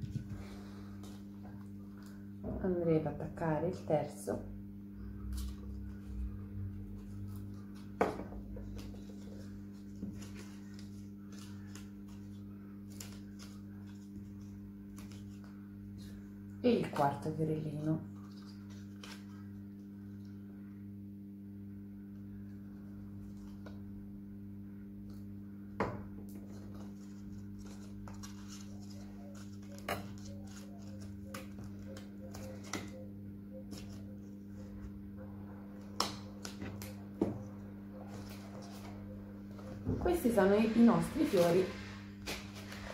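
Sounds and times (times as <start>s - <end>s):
steady low hum: 0.0s - 42.9s
paper rustling: 6.9s - 16.2s, 18.1s - 19.8s, 26.4s - 33.0s, 33.6s - 34.9s, 38.0s - 39.8s, 41.2s - 42.9s.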